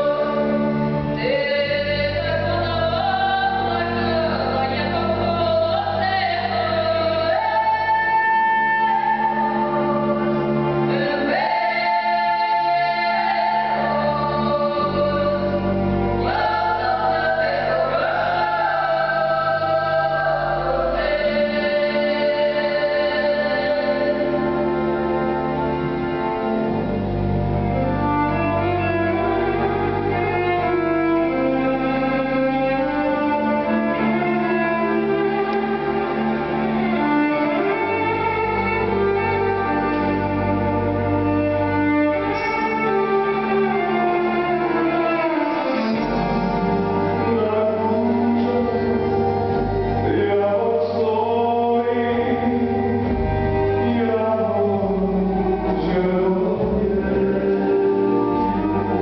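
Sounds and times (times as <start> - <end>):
bowed strings: 0.0 - 59.0.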